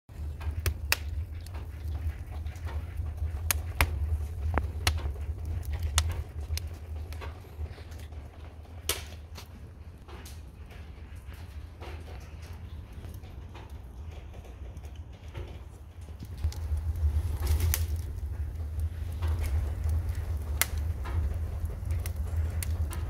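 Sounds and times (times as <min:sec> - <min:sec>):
low rumble of fire: 0:00.1 - 0:23.0
wood fire crackling and popping: 0:00.1 - 0:23.0.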